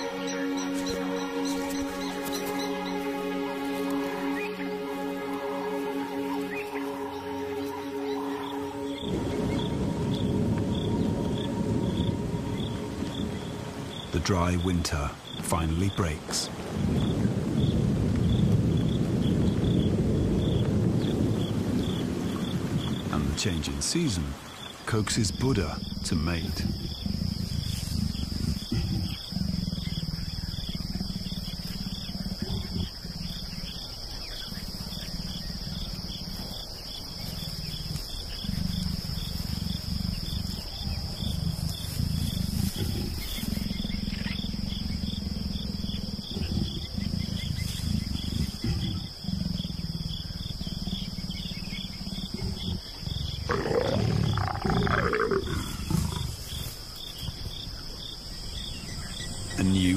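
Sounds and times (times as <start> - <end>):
leopards growling: 24.9 - 59.9
leopard snarling: 25.3 - 36.6, 37.2 - 58.1.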